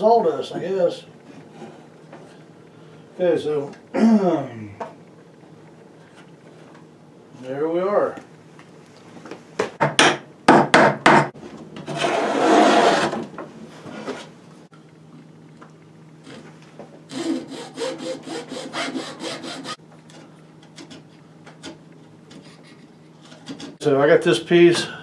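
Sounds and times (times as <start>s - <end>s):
chisel scraping wood: 11.9s - 13.2s
hand saw cutting wood: 11.9s - 13.2s, 17.1s - 19.8s
scraping rub: 11.9s - 13.2s, 13.8s - 14.4s.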